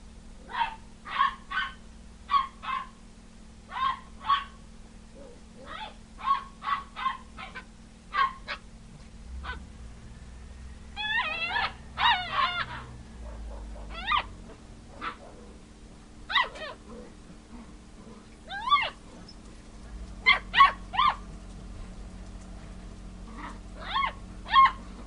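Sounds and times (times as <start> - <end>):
puppy yipping: 0.5 - 3.0, 3.7 - 4.6, 5.2 - 8.6, 9.4 - 9.6, 11.0 - 14.3, 15.0 - 15.4, 16.3 - 16.8, 18.5 - 19.4, 20.2 - 21.2, 23.4 - 24.8
puppy whining: 11.0 - 14.4, 16.3 - 19.6, 23.3 - 25.0.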